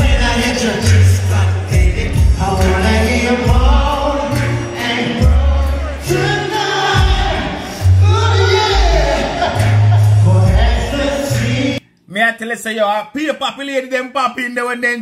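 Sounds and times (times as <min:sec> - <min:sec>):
backing track with deep bass: 0:00.0 - 0:11.8
crowd singing along: 0:00.0 - 0:11.8
man singing into microphone: 0:00.0 - 0:11.8.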